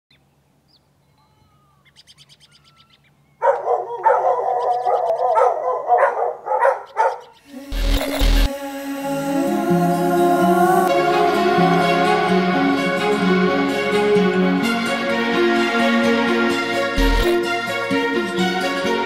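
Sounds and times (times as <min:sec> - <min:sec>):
dogs barking: 0:03.4 - 0:07.4.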